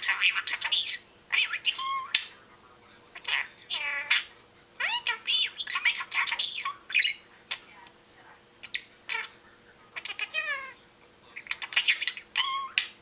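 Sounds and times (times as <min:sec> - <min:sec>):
budgerigar mimicking speech: 0:00.0 - 0:02.3, 0:03.2 - 0:07.7, 0:08.6 - 0:09.4, 0:10.0 - 0:10.8, 0:11.4 - 0:13.0
bird chirps: 0:03.2 - 0:07.6.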